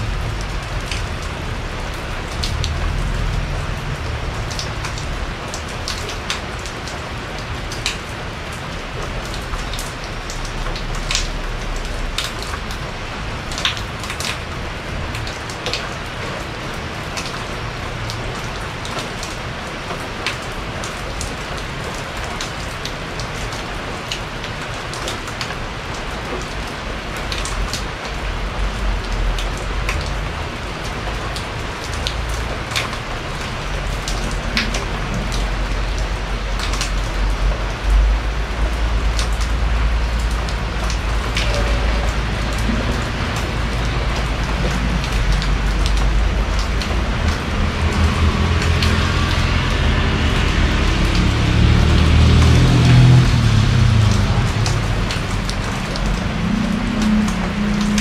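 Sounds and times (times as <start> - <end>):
low rumble: 0.0 - 5.8
rain drops striking porch: 0.0 - 58.0.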